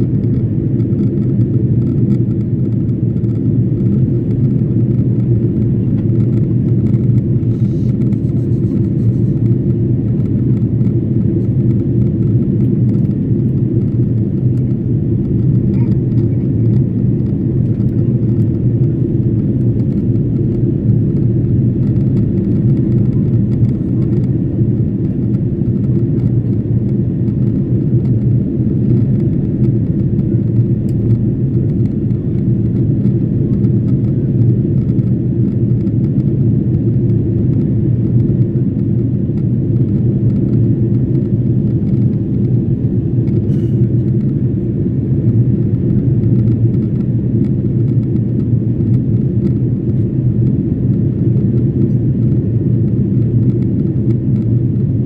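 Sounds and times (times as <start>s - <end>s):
jet engines and airflow rumble: 0.0s - 55.0s.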